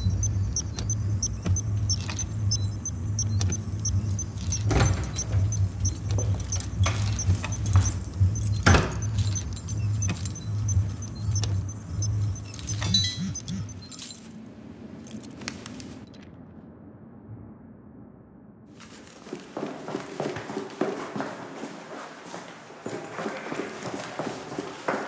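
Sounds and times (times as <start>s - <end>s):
low pulsing machine hum: 0.0s - 14.2s.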